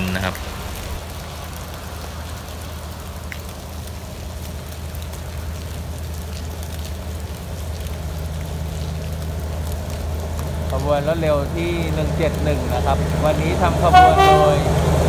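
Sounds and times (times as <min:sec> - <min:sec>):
light rain hiss: 0:00.0 - 0:15.0
locomotive engine drone: 0:04.0 - 0:15.0.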